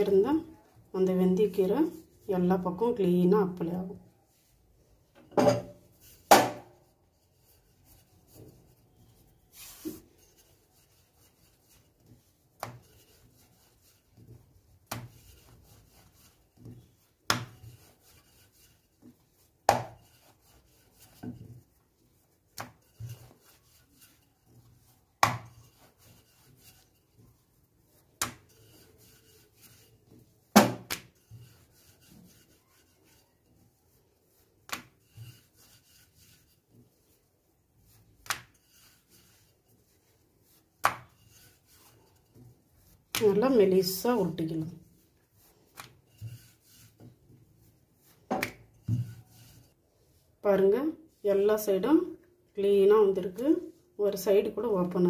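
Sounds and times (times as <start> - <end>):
rolling pin rubbing on dough: 0.0 - 5.1, 5.8 - 55.0
rolling pin knocking on board: 19.7 - 20.0, 30.6 - 31.1.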